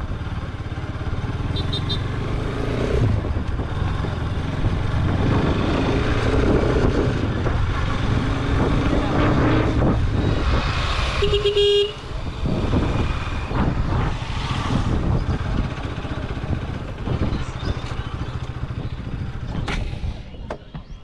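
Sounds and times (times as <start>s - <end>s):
road traffic engines running: 0.0s - 21.0s
vehicle horn honk: 1.5s - 2.1s, 11.2s - 12.0s.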